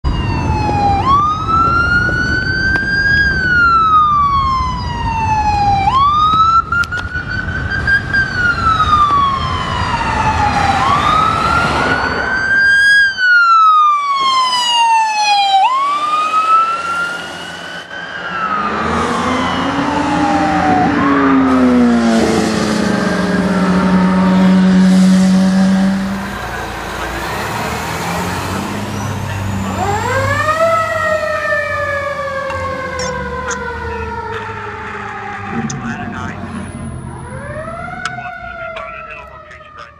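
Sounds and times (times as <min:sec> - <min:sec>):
ambulance siren wailing: 0:00.0 - 0:39.9
traffic noise: 0:00.0 - 0:39.9
loud deep steady tone: 0:32.5 - 0:39.9.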